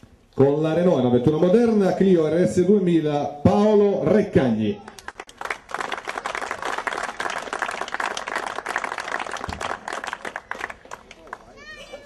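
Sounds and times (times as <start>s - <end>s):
crowd applauding: 5.0s - 11.8s.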